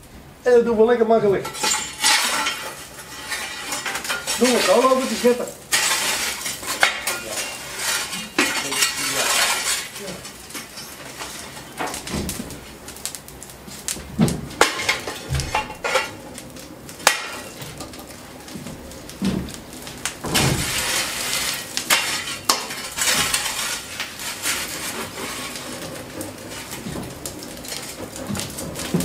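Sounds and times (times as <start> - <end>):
metal shovel clanking: 1.4 - 11.6, 14.6 - 16.2, 17.0 - 17.9, 20.3 - 26.8
shovel scraping on iron: 1.4 - 11.6, 14.6 - 16.2, 20.4 - 26.8.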